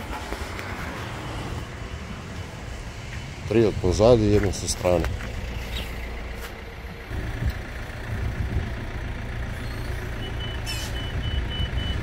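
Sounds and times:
vehicle engine running: 0:00.0 - 0:12.0
reversing alarm beeping: 0:09.6 - 0:12.0.

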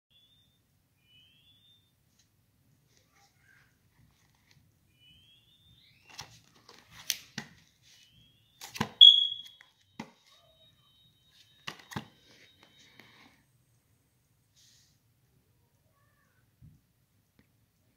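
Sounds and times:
short high-pitched tone: 0:09.0 - 0:09.6.

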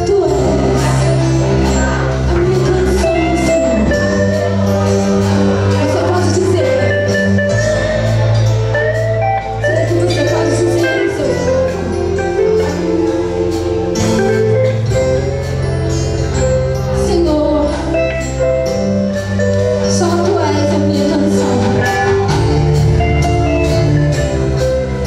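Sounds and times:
electric guitar: 0:00.0 - 0:25.0
steady beat: 0:20.9 - 0:25.0.

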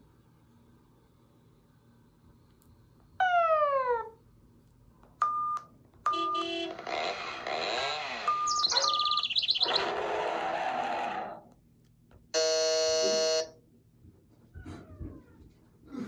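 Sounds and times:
harsh buzzer tone: 0:06.1 - 0:09.0, 0:12.4 - 0:13.6
electronic warbling chirps and beeps: 0:08.0 - 0:10.0.

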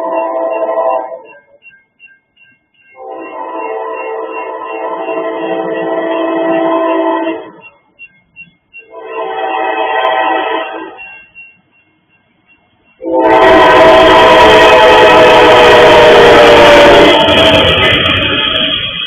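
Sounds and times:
crossing signal bell dinging: 0:00.0 - 0:19.0
rumble of engine and wheels: 0:01.4 - 0:09.1, 0:17.1 - 0:19.0
locomotive air horn blasts: 0:03.0 - 0:07.6, 0:08.9 - 0:11.0, 0:13.0 - 0:17.8.

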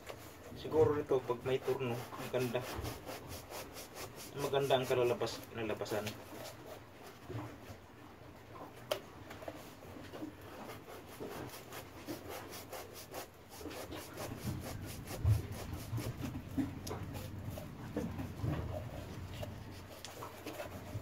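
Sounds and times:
knife scraping hard foam: 0:00.0 - 0:06.8, 0:10.4 - 0:17.8, 0:18.8 - 0:21.0.

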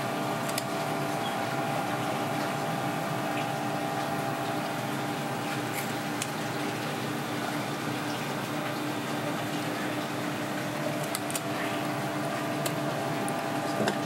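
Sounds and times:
kitchen machine hum and hiss: 0:00.0 - 0:14.0
shears snipping clicks: 0:00.4 - 0:00.7, 0:11.0 - 0:11.5.

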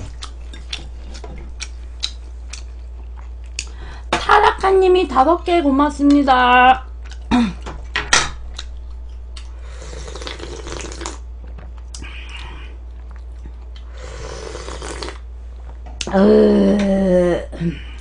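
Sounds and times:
steady low hum: 0:00.0 - 0:18.0
wet slurping: 0:09.6 - 0:11.2, 0:13.9 - 0:15.2.

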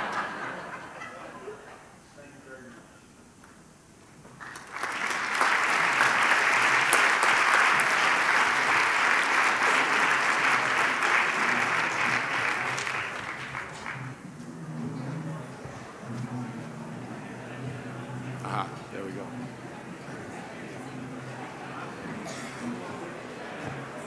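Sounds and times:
audience applauding: 0:04.3 - 0:14.4, 0:16.8 - 0:24.0.

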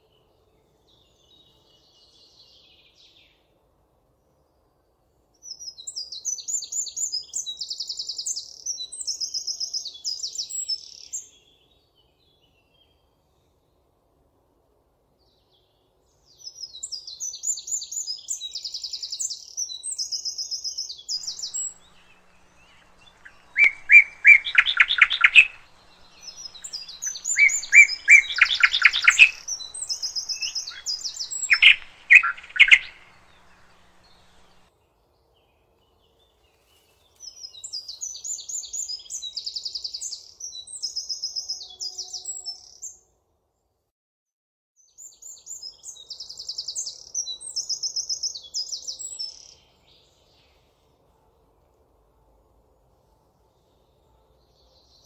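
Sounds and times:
high trilled birdsong: 0:21.2 - 0:34.7
lower repeated bird notes: 0:21.2 - 0:34.7.

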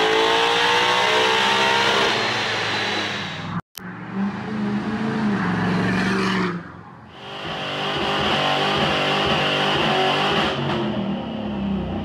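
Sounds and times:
car engine revving: 0:00.0 - 0:12.0
tire squeal: 0:05.3 - 0:08.0.

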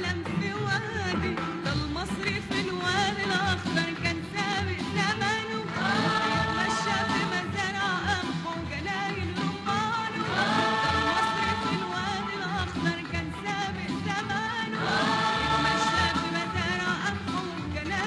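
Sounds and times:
musical accompaniment: 0:00.0 - 0:18.0
woman singing: 0:00.0 - 0:18.0.

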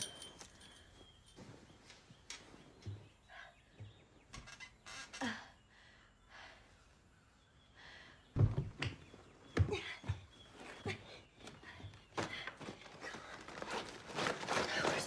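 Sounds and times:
soft rustling: 0:00.0 - 0:03.4, 0:09.1 - 0:15.0.

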